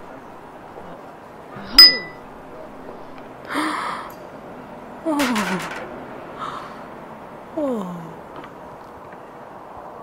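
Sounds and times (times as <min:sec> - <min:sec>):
mallet striking a chisel: 0:01.8 - 0:02.2.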